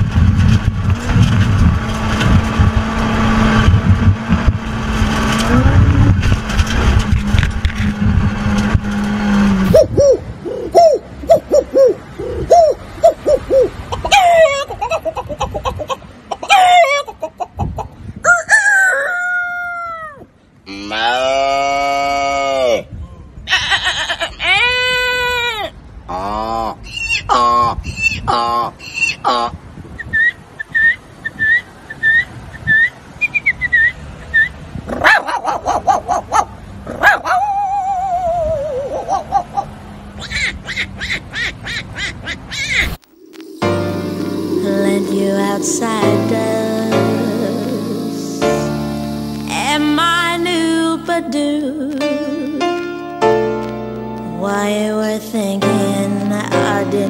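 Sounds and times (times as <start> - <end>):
man imitating chicken clucks: 9.6 - 29.6, 34.4 - 40.4.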